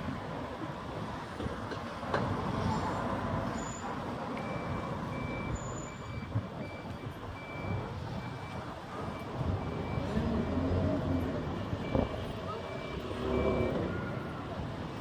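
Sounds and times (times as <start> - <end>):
street traffic rumble: 0.0 - 15.0
high electronic beep: 4.4 - 10.6, 11.8 - 14.2.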